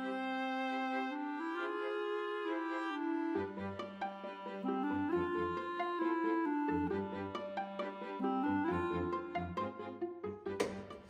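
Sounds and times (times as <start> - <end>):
background music melody: 0.0 - 11.0.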